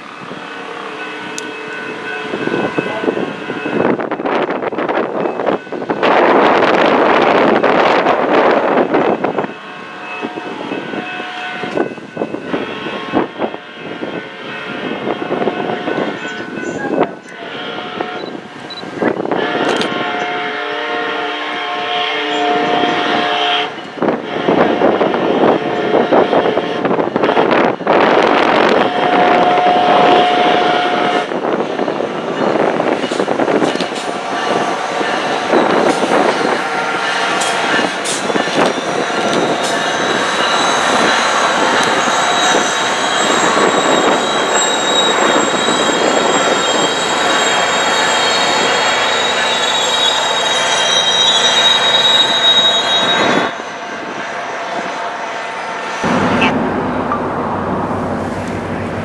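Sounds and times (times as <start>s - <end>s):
train wheels squealing: 16.0s - 17.4s, 31.8s - 55.0s
train wheels clicking over rail joints: 37.3s - 42.2s.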